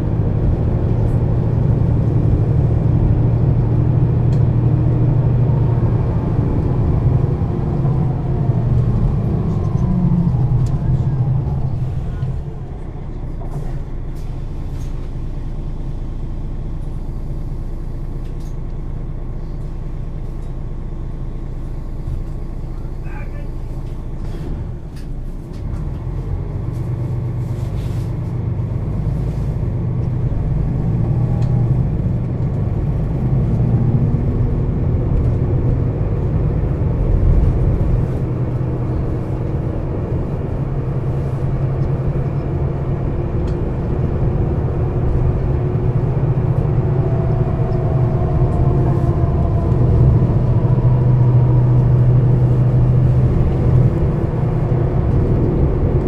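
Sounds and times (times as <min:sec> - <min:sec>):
bus engine droning: 0:00.0 - 0:56.0
faint rising whines: 0:45.2 - 0:55.5.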